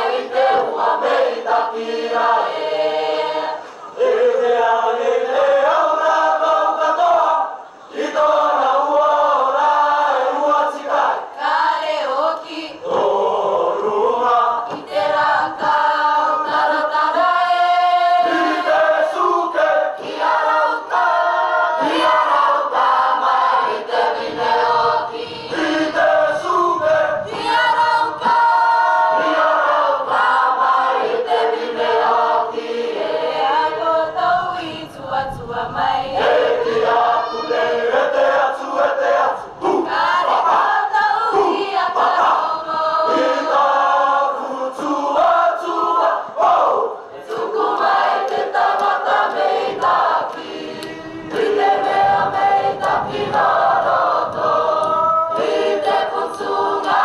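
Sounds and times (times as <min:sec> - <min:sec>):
group singing in chorus: 0:00.0 - 0:57.0.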